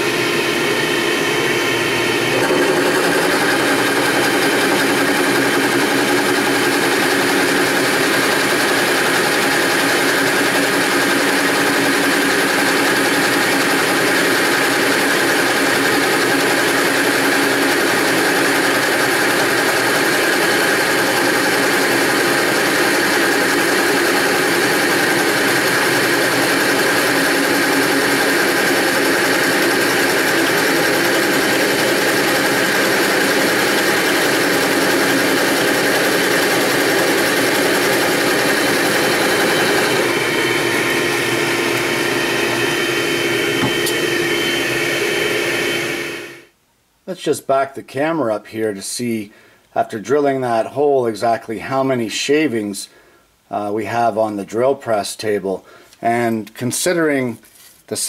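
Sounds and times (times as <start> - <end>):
drill press boring into wood: 0.0 - 46.4
shop vac running: 0.0 - 46.6.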